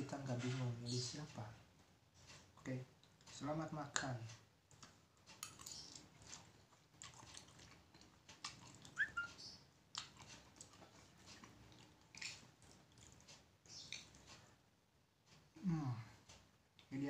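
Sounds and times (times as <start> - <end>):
person chewing and slurping noodles: 5.3 - 9.0, 9.9 - 14.4
high squeaky slurp: 9.0 - 9.3.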